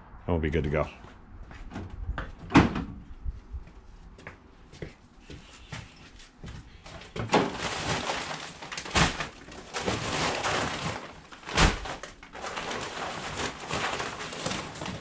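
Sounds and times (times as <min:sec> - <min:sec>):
plastic sacks rustling: 0:06.8 - 0:15.0
sacks dropped with heavy thuds: 0:07.1 - 0:15.0.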